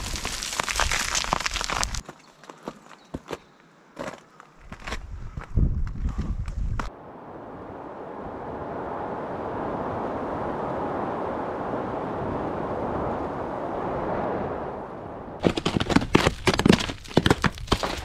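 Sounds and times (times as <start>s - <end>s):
wind-like rushing noise: 5.0s - 17.6s.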